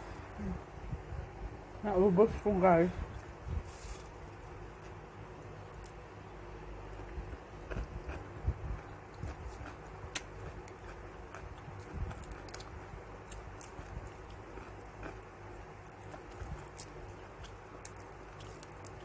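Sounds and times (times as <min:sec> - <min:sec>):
low steady hum: 0:00.0 - 0:19.0
chewing: 0:06.9 - 0:19.0.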